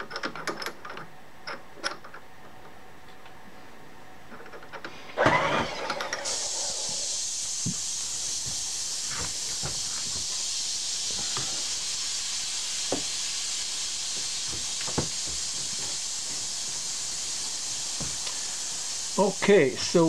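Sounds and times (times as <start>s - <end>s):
steady hiss: 4.8s - 20.0s.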